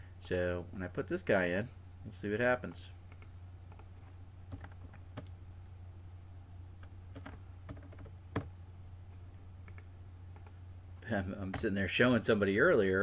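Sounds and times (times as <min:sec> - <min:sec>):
low steady hum: 0:00.0 - 0:13.0
laptop keyboard typing: 0:04.5 - 0:05.3, 0:07.1 - 0:08.5.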